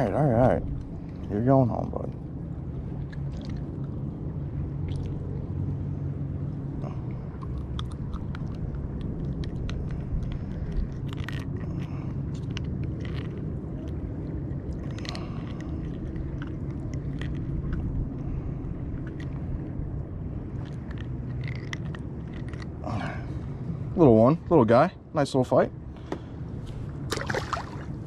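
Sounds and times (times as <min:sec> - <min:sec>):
steady low rumble: 0:00.0 - 0:28.0
small clicks and scrapes: 0:07.4 - 0:14.0, 0:14.7 - 0:18.0, 0:20.5 - 0:22.7.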